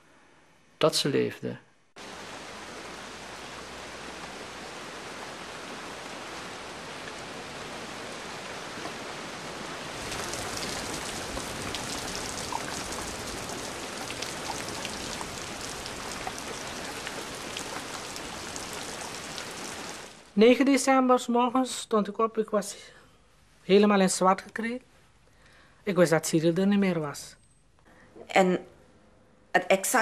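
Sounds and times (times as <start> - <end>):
raindrops crackling: 2.0 - 20.4
steady rain: 2.0 - 20.6.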